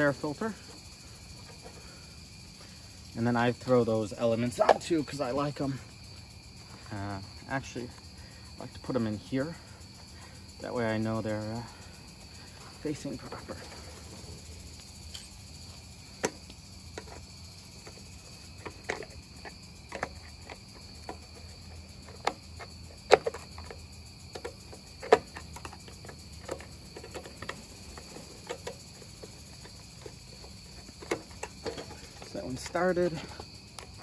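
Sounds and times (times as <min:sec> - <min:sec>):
insect trill: 0:00.0 - 0:34.0
engine parts clicking and knocking: 0:08.6 - 0:34.0.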